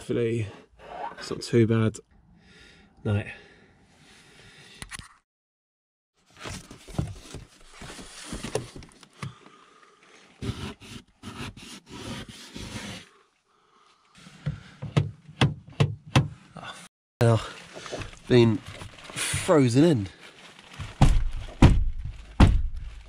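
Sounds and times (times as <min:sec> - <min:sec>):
sharp knocks: 0:21.0 - 0:22.8.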